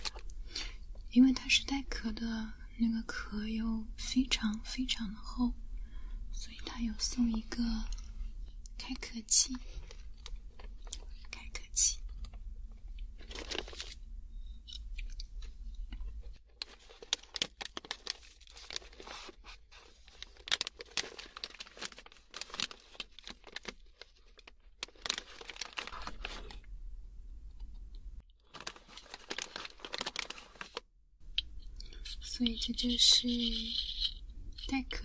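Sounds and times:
packaging crinkling: 13.2 - 14.0, 16.4 - 26.7, 28.4 - 30.8.

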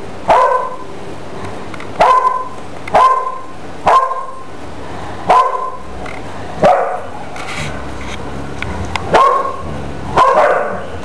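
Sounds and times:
puppy barking: 0.3 - 0.9, 2.0 - 4.5, 5.3 - 5.9, 6.6 - 7.2, 9.0 - 11.0.

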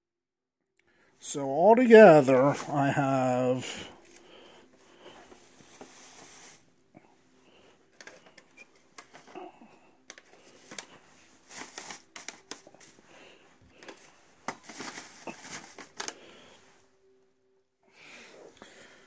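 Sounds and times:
clicks of things handled: 8.0 - 9.4.

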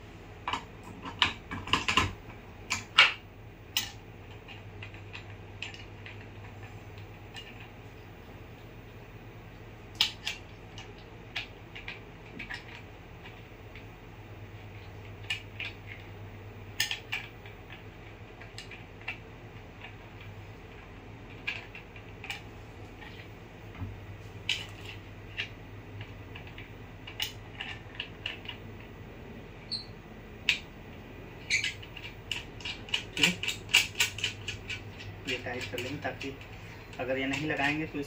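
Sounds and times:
steady low hum: 0.0 - 38.0
metal and plastic parts clicking: 9.9 - 13.9, 16.8 - 19.2, 19.8 - 22.4, 31.5 - 38.0.

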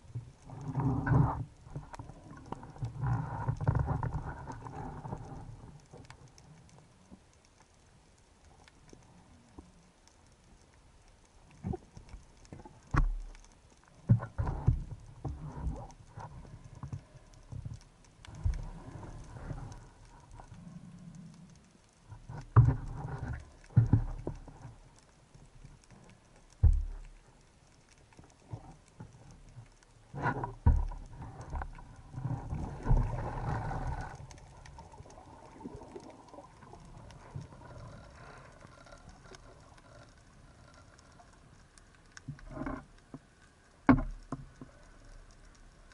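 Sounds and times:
underwater knocks and thumps: 11.6 - 13.4, 14.0 - 19.7, 22.2 - 24.8, 26.5 - 27.2, 30.2 - 34.1, 43.8 - 44.7.

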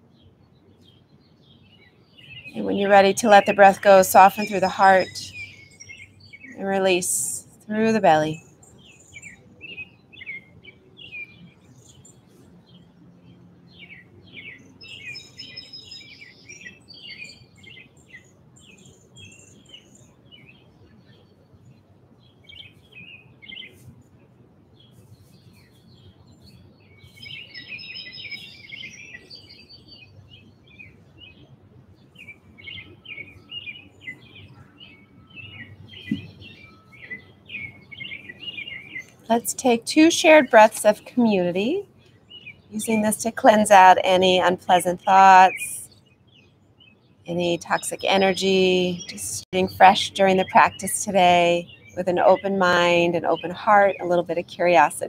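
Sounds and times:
songbirds chirping: 0.0 - 55.0.

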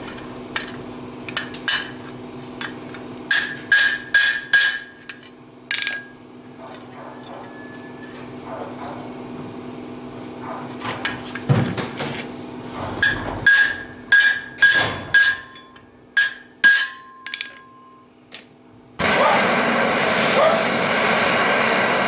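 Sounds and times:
hammer striking steel on anvil: 2.6 - 6.2, 13.0 - 18.0.

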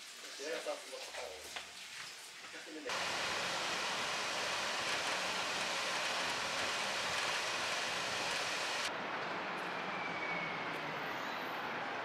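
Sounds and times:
steady outdoor hiss: 2.3 - 9.5
quiet street background: 8.4 - 12.0.

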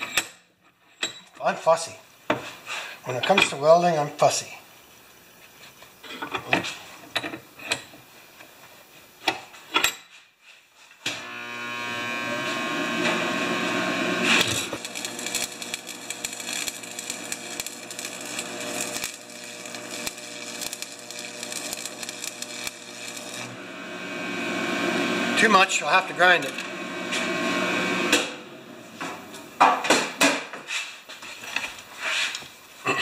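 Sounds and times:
welding arc crackling and sizzling: 11.1 - 29.3
buzzing hum: 11.1 - 29.6.

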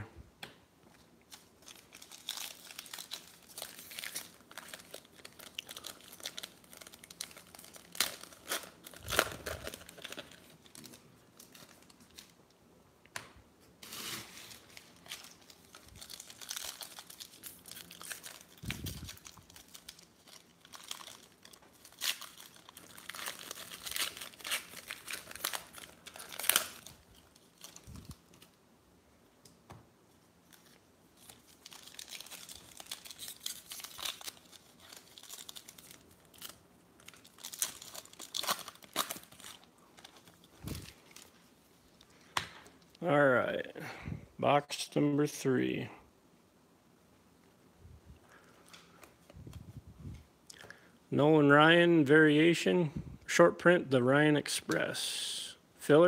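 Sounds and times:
foil wrappers crinkling and tearing: 1.3 - 12.4, 13.8 - 28.6, 30.5 - 42.2.

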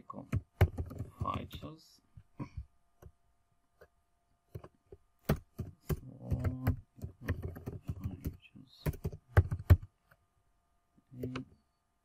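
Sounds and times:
typing on a computer keyboard: 0.2 - 1.7, 4.5 - 9.9.

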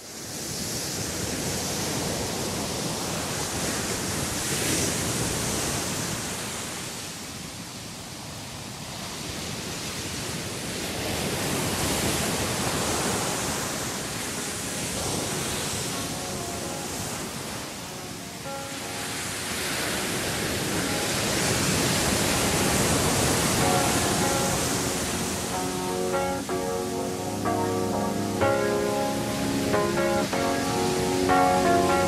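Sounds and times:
steady rushing water: 12.8 - 32.0
faint musical tones: 14.0 - 32.0.

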